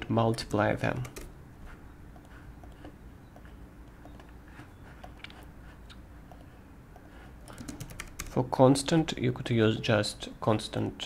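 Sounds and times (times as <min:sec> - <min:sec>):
low steady hum: 0:00.0 - 0:11.0
computer mouse clicks: 0:02.1 - 0:04.4, 0:05.0 - 0:08.4.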